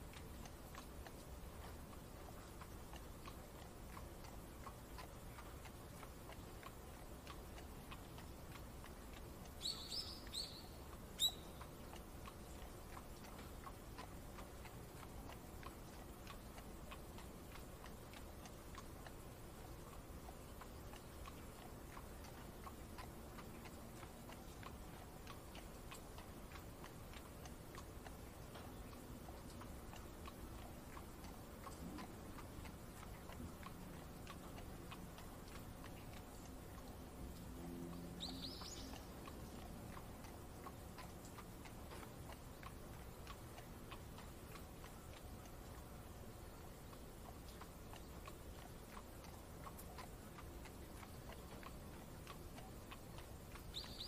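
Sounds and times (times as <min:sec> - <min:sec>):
bird chirping: 0:09.6 - 0:11.7, 0:38.2 - 0:39.1, 0:53.6 - 0:54.0.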